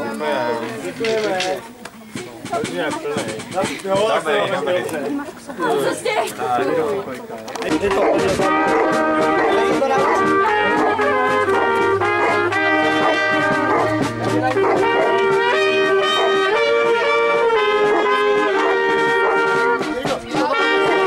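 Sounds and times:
brass band playing: 7.7s - 21.0s.

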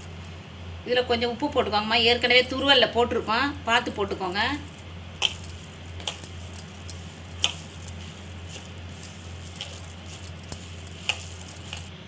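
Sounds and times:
glass bangles clinking: 0.0s - 0.4s, 3.7s - 12.0s
low steady hum: 0.0s - 12.0s.

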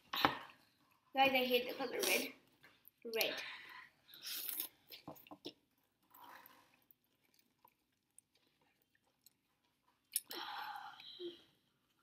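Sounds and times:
quiet chewing: 2.4s - 10.4s
person slurping noodles: 4.2s - 4.9s.

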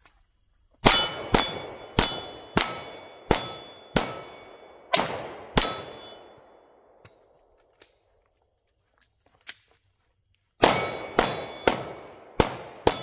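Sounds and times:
steel plate target ringing: 0.8s - 4.9s, 5.5s - 6.6s, 10.6s - 13.0s
pistol shots: 0.8s - 7.0s, 10.6s - 13.0s.

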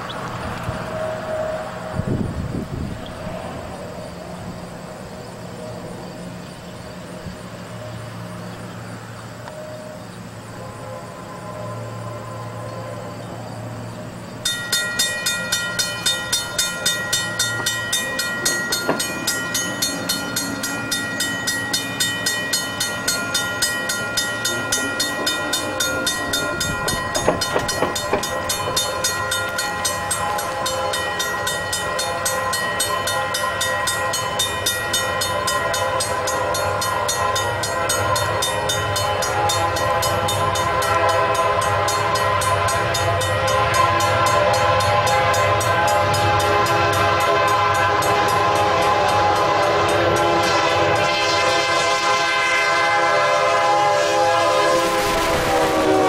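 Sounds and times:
level-crossing warning bell: 0.0s - 56.0s
train rumbling: 0.0s - 56.0s
metallic knocks: 26.6s - 28.8s.

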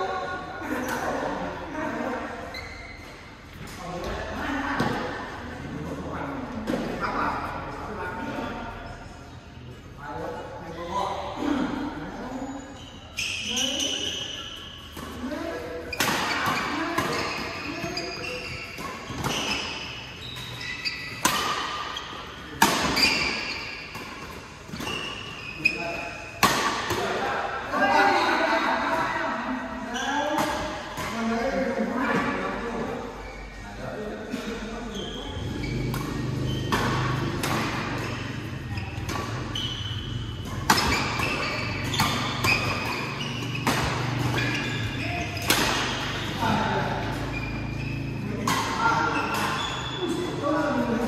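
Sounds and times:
shoes squeaking on court: 2.4s - 5.1s, 12.2s - 27.2s, 29.8s - 31.2s, 32.1s - 33.6s, 34.4s - 51.0s
rackets hitting shuttlecock: 15.9s - 27.5s, 35.7s - 51.0s
racket striking shuttlecock: 21.2s - 22.0s, 22.6s - 24.4s, 26.4s - 27.1s, 35.9s - 38.1s, 40.4s - 44.6s, 45.4s - 46.2s.

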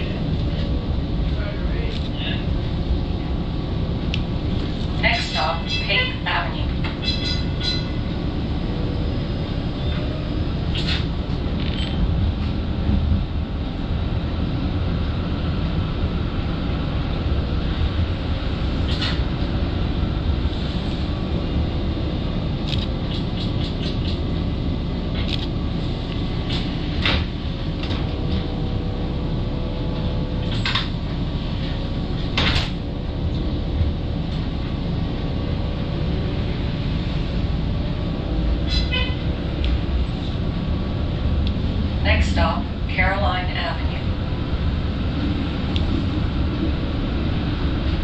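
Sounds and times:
streetcar rumbling on track: 0.0s - 48.0s.

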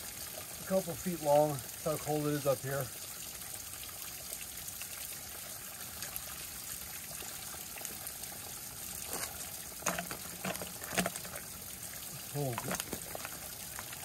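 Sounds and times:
spring water trickling and splashing: 0.0s - 14.0s
water bottle filling: 9.0s - 14.0s.

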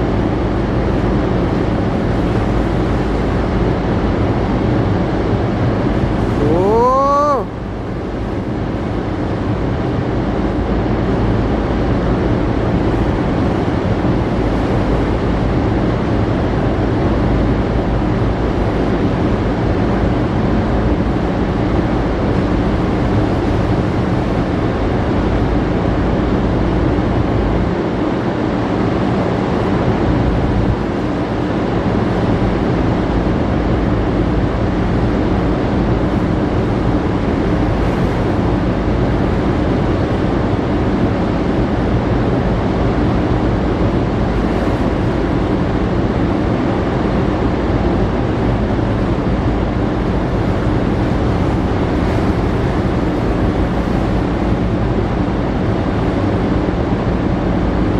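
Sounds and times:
wind and sea rushing: 0.0s - 57.9s
ship engines humming: 5.8s - 8.4s.

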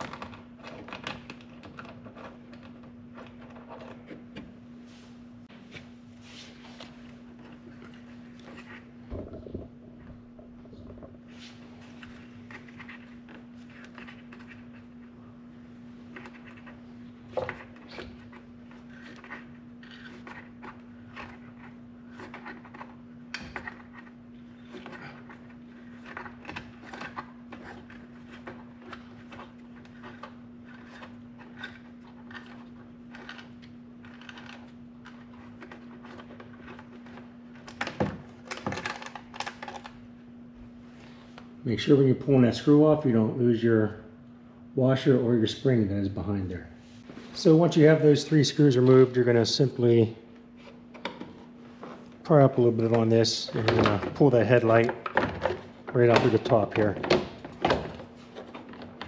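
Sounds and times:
clicks and scrapes of plastic parts: 0.0s - 4.4s, 16.1s - 39.9s
steady low hum: 0.0s - 59.0s.

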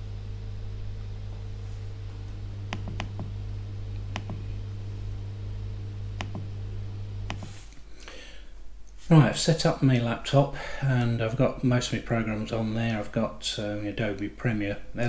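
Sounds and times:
steady low hum: 0.0s - 15.0s
laptop clicks: 2.7s - 3.3s, 4.1s - 4.4s, 6.2s - 6.5s, 7.3s - 7.5s.

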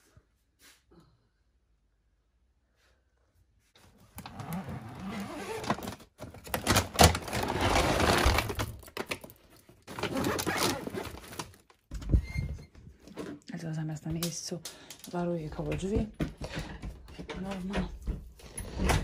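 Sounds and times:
plastic bag rustling: 4.2s - 11.9s.

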